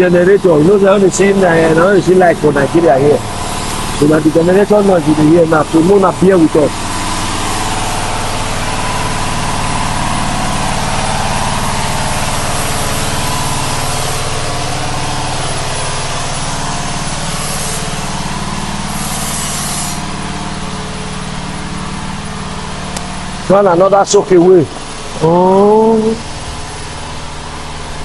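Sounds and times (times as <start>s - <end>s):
generator engine running: 0.0s - 28.0s.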